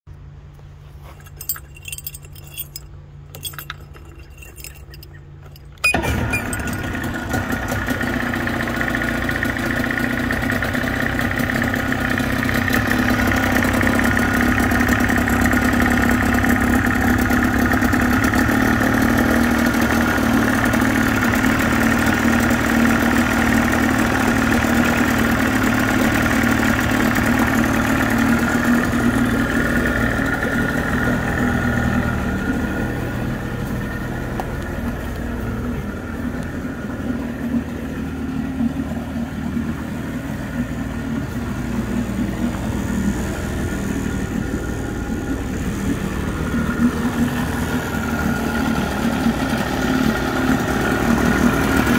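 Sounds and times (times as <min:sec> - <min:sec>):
outboard motor running: 0:00.2 - 0:51.9
keys jingling: 0:01.0 - 0:06.8.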